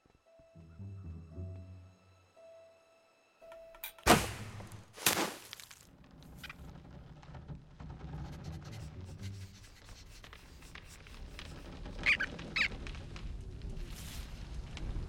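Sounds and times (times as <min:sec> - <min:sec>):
short high squeaks: 0:11.9 - 0:12.8.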